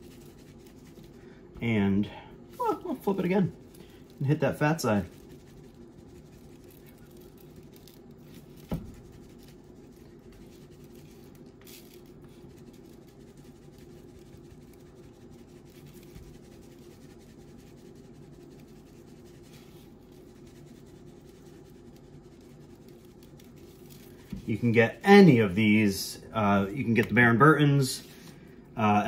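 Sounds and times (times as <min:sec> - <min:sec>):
steady low hum: 0:00.0 - 0:29.0
seasoning shaken from shaker jar: 0:02.6 - 0:24.7
dull thump: 0:08.6 - 0:09.0.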